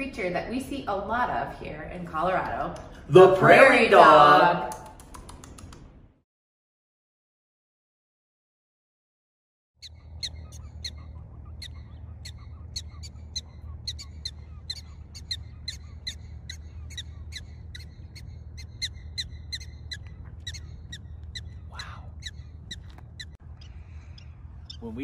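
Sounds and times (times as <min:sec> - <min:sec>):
prairie dog barking calls: 0:09.8 - 0:25.0
steady low rumble: 0:09.9 - 0:25.0.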